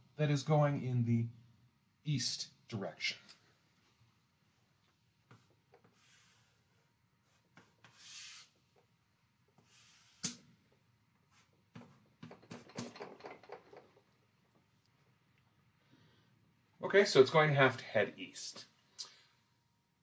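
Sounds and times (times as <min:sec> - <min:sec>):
marker rubbing on board: 0:07.2 - 0:08.7.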